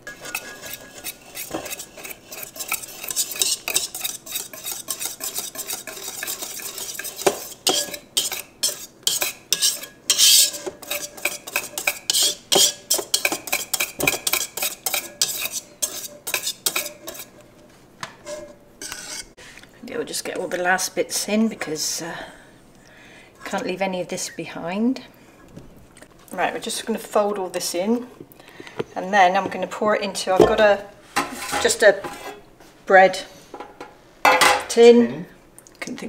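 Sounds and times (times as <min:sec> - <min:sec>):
whisk scraping metal pot: 0:00.0 - 0:17.4, 0:18.2 - 0:19.4.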